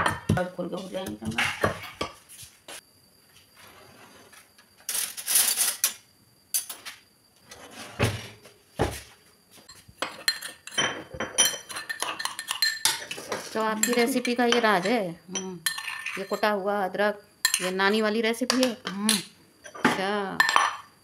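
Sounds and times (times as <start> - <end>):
steel cutlery clattering: 10.0 - 14.4
spoon scraping steel mortar: 11.4 - 15.0, 15.6 - 16.5.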